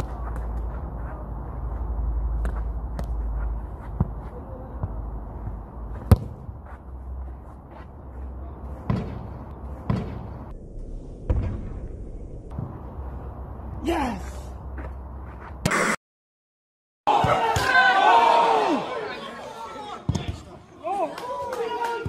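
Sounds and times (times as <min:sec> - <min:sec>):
football tapping at feet: 0:02.3 - 0:06.8
low rumble: 0:04.8 - 0:15.6
ball kicked with sharp thud: 0:06.0 - 0:06.5.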